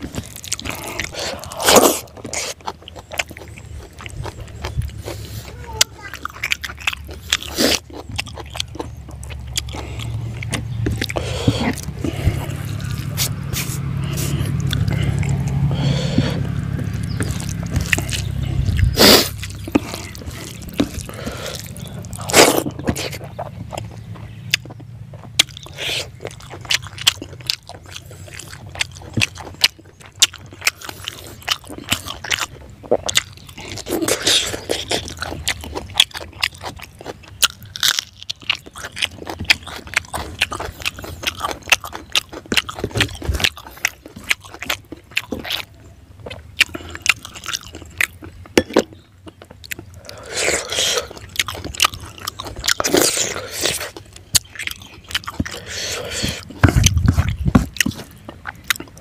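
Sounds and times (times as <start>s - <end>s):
chewing and crunching: 0.0s - 59.0s
low rumble: 9.4s - 22.3s.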